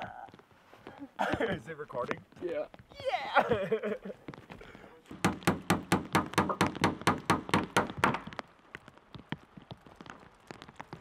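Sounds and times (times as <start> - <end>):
rapid hammering on wood: 5.1 - 8.4.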